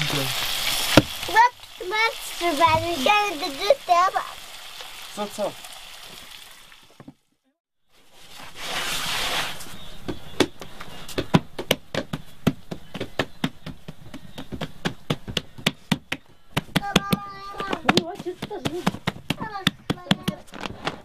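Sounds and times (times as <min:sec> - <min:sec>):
sharp irregular knocks: 0:10.0 - 0:21.0.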